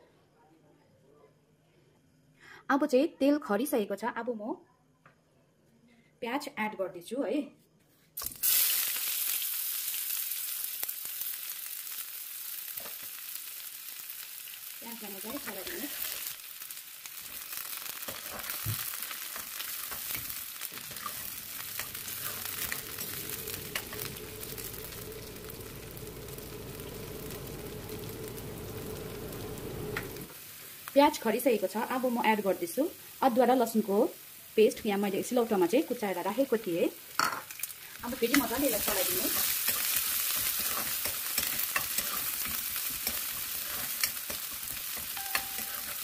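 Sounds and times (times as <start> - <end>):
onions sizzling in hot oil: 8.2 - 46.0
metal spatula scraping a pan: 19.4 - 24.7, 38.3 - 46.0.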